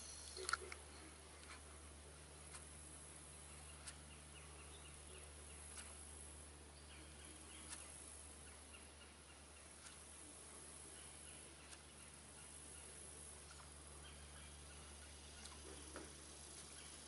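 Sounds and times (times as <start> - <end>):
steady low hum: 0.0 - 17.0
sharp ticks: 2.4 - 15.6
small high chirping calls: 10.8 - 17.0.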